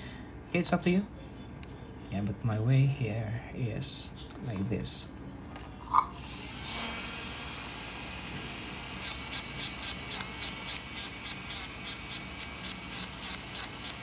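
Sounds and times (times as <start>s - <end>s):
dental handpiece whining: 6.1s - 14.0s
disc scratching on tooth: 9.0s - 14.0s.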